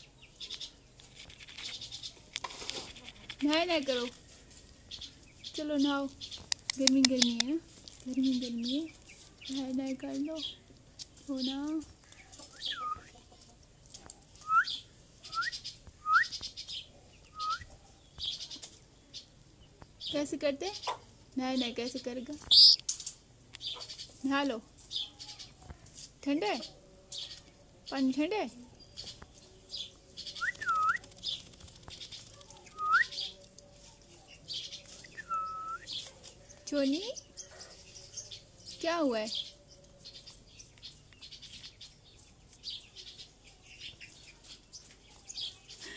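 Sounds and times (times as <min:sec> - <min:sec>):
parakeet chirps: 0:22.5 - 0:22.8.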